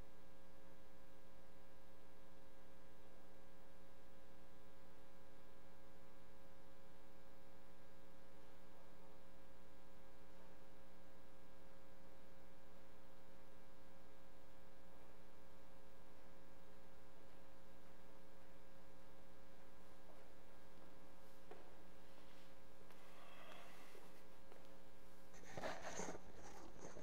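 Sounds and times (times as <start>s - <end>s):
electrical hum: 15.5s - 27.0s.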